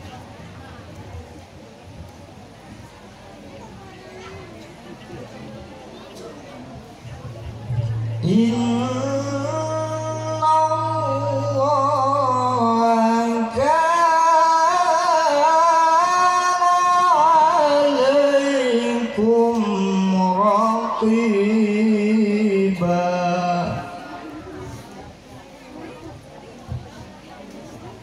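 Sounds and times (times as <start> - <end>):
steady low hum: 7.0 - 13.6
man reciting melodically: 7.7 - 24.2.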